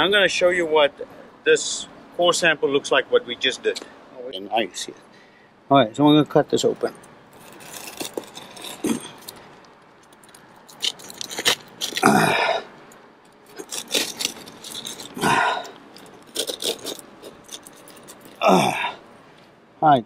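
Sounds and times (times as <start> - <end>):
knife cutting roof membrane: 13.5 - 17.7.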